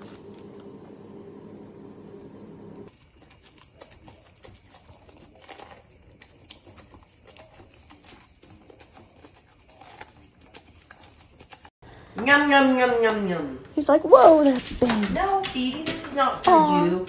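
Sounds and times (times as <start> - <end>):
puppy crunching corn kernels: 2.9 - 11.7.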